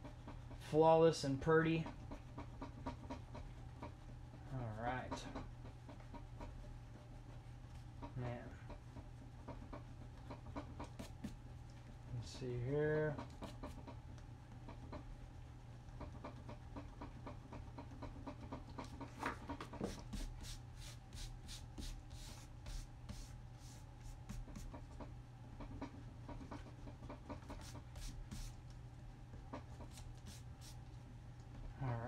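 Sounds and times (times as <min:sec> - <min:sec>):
pencil scratching on paper: 0:01.9 - 0:11.4, 0:14.7 - 0:25.0, 0:26.4 - 0:28.6.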